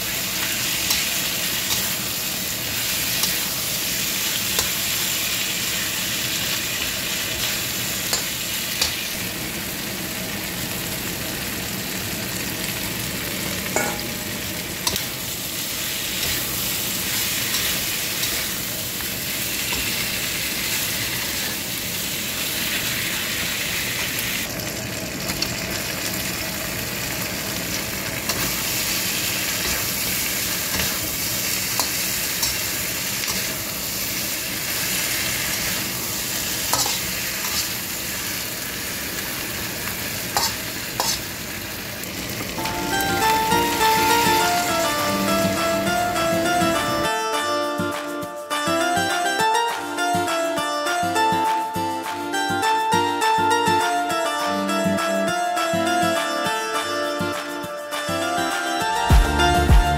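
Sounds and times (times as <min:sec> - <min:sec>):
chicken sizzling in a wok: 0:00.0 - 0:47.0
metal spatula scraping a wok: 0:29.6 - 0:38.0, 0:40.3 - 0:41.3.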